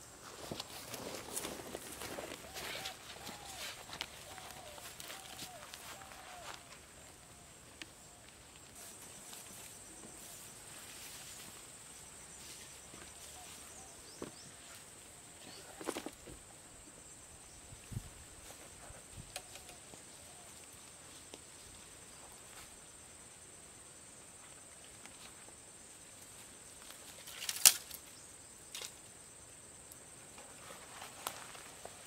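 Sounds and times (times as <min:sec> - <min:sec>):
footsteps on grass and leaves: 0:00.0 - 0:07.2, 0:08.3 - 0:14.9
high insect drone: 0:00.0 - 0:32.0.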